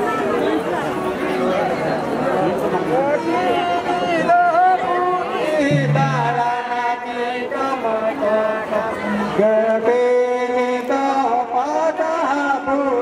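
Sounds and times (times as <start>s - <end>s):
chanted singing: 5.4s - 9.8s
steady low drone: 5.7s - 7.1s.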